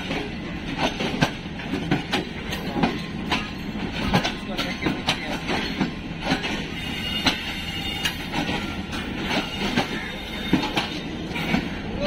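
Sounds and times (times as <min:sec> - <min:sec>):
train rumbling on rails: 0:00.0 - 0:12.0
wheels clattering over rail joints: 0:00.0 - 0:12.0
faint high wheel squeal: 0:06.7 - 0:11.8.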